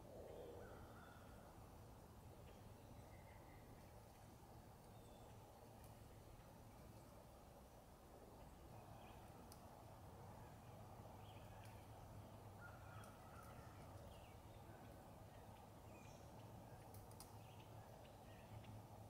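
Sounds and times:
faint clicks: 0:05.8 - 0:06.5, 0:09.4 - 0:09.7, 0:16.4 - 0:18.8.

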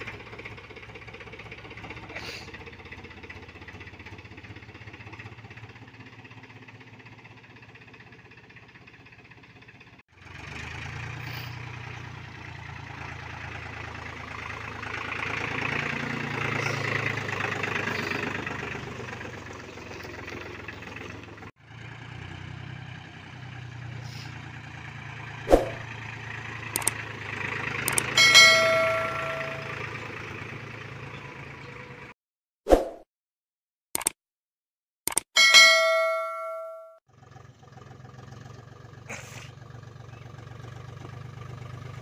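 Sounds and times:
tractor diesel engine running: 0:00.0 - 0:32.1, 0:35.1 - 0:42.0
sharp clicks: 0:26.8 - 0:27.0, 0:27.8 - 0:28.1, 0:34.0 - 0:34.2, 0:35.1 - 0:35.3
bell-like ding: 0:28.2 - 0:30.0, 0:35.4 - 0:37.0.

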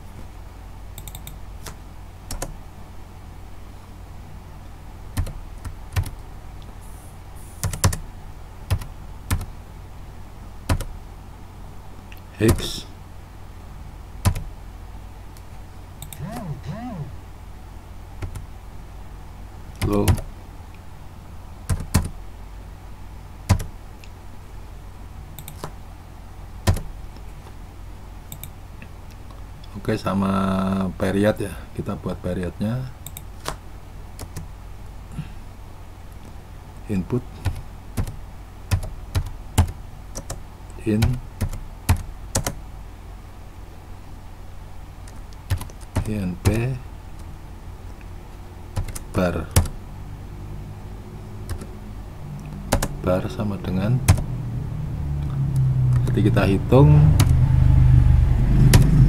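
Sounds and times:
steady low hum: 0:00.0 - 0:59.0
computer keyboard keystrokes: 0:01.0 - 0:02.5, 0:07.6 - 0:08.0, 0:21.7 - 0:22.1, 0:23.5 - 0:23.7, 0:25.4 - 0:25.7, 0:26.7 - 0:26.9, 0:37.4 - 0:40.4, 0:41.0 - 0:42.6, 0:45.1 - 0:46.6, 0:48.8 - 0:49.7, 0:51.5 - 0:51.7, 0:52.7 - 0:52.9
keyboard key clicks: 0:01.0 - 0:02.5.

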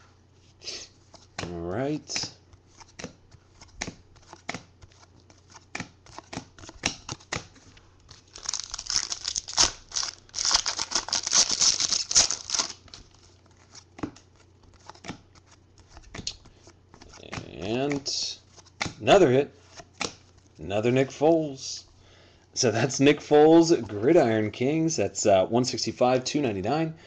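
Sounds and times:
foil pack tearing and crinkling: 0:08.1 - 0:13.2.

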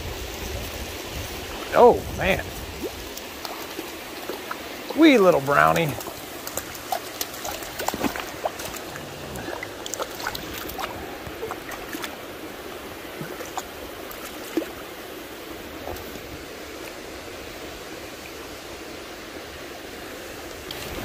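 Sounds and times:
creek water rushing: 0:00.0 - 0:21.0
small clicks and splashes: 0:02.5 - 0:12.2, 0:13.1 - 0:14.8.

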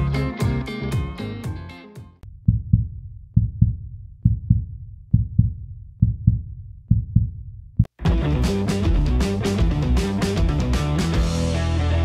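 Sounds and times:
heartbeat thumps: 0:02.2 - 0:08.2.

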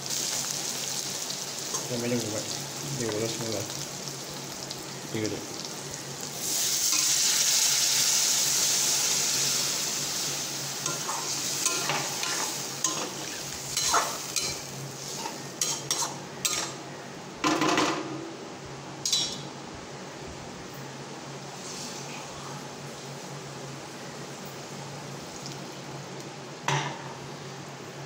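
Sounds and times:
water sizzling in hot oil: 0:00.0 - 0:16.7.

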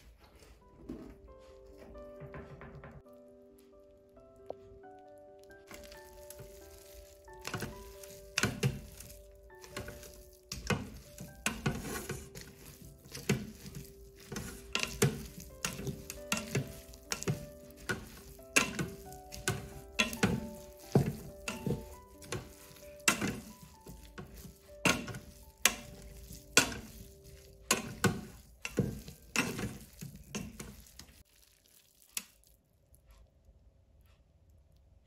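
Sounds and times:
soft background music: 0:00.0 - 0:31.3
spatula scraping metal pot: 0:05.7 - 0:31.2.

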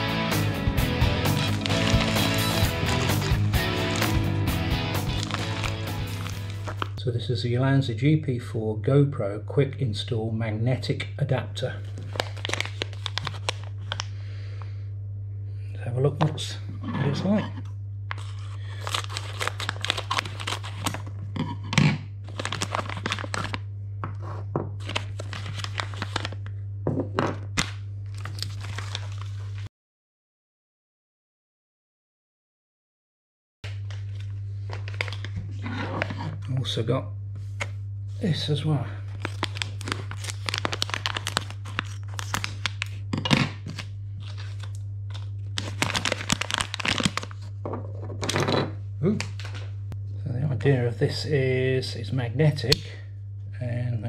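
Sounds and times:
steady low hum: 0:00.5 - 0:28.2, 0:33.7 - 0:54.0
plastic crinkling and rustling: 0:01.4 - 0:04.2, 0:05.0 - 0:07.0, 0:11.8 - 0:14.1, 0:18.1 - 0:21.2, 0:22.2 - 0:23.6, 0:24.8 - 0:26.5, 0:27.6 - 0:29.7, 0:33.8 - 0:36.4, 0:39.1 - 0:48.0.

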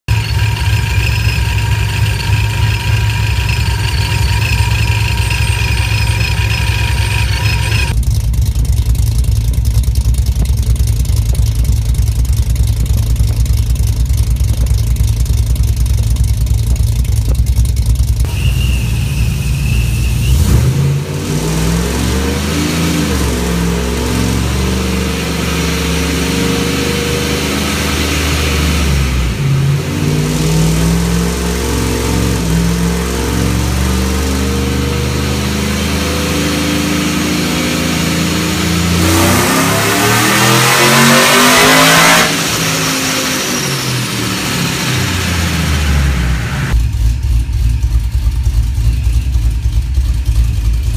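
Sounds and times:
supercharged engine revving: 0:00.0 - 0:08.0, 0:18.2 - 0:47.0.

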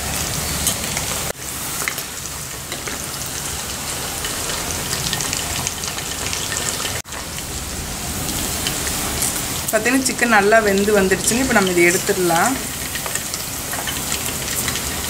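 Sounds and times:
chicken deep-frying in oil: 0:00.0 - 0:15.0.

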